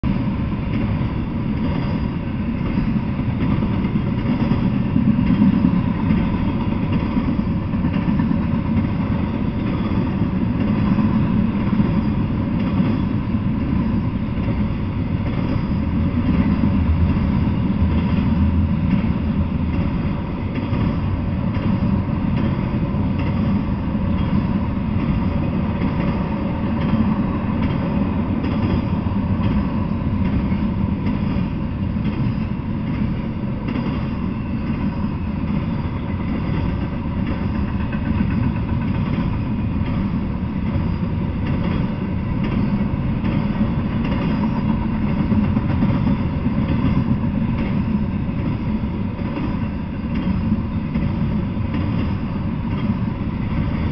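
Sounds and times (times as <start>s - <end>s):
freight train wheels rumbling on rails: 0.0s - 53.9s.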